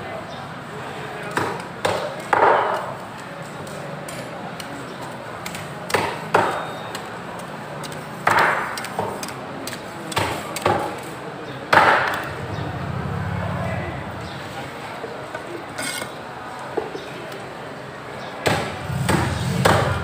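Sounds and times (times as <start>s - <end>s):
cleaver chopping on wooden block: 5.4s - 6.6s, 7.8s - 11.1s.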